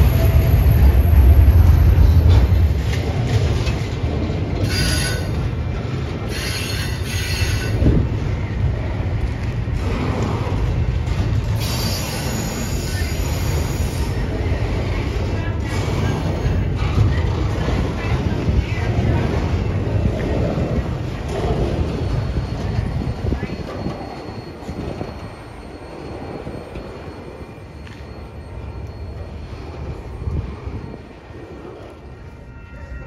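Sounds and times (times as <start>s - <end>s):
train rumbling past: 0.0s - 33.0s
train wheels squealing: 4.5s - 5.6s, 6.2s - 9.1s, 10.0s - 33.0s.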